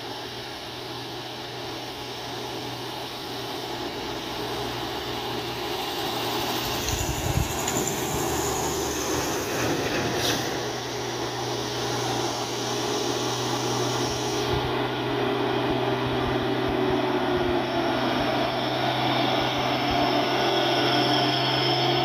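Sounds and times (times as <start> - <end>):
truck diesel engine climbing: 0.1 - 22.0.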